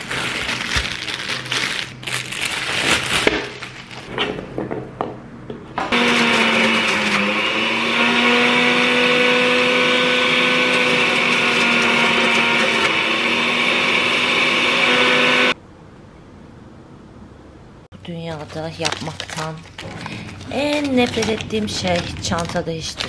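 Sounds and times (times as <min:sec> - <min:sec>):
juicer motor whining: 0:05.9 - 0:15.6.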